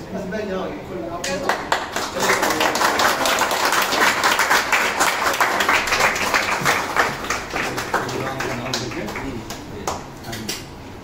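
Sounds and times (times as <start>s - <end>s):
people applauding: 1.2s - 10.0s.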